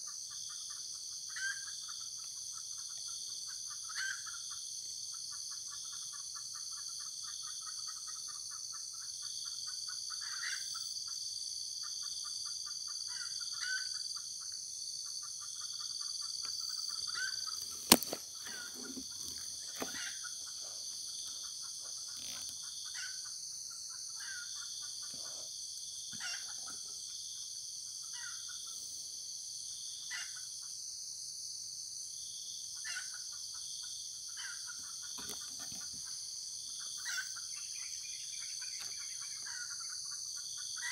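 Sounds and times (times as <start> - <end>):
insects droning: 0.0 - 40.9
sharp crack: 17.6 - 18.2.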